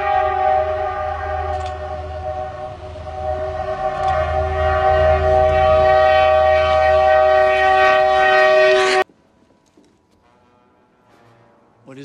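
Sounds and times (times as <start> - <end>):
locomotive horn chord: 0.0 - 9.0, 10.2 - 12.0
train rumble: 0.0 - 12.0.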